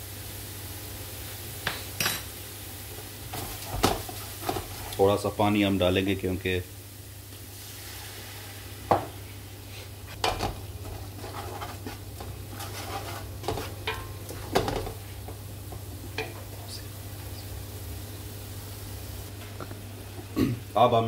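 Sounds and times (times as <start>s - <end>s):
onions sizzling: 0.0s - 21.0s
wooden spatula scraping a pot: 3.3s - 5.0s, 10.2s - 15.3s.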